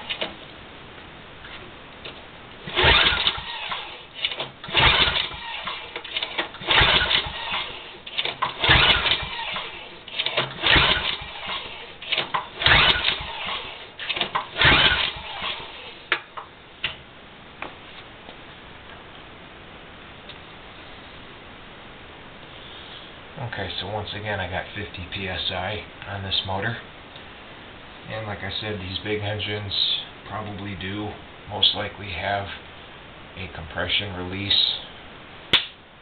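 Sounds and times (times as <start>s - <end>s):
recoil starter pulls cranking engine: 2.7s - 16.0s.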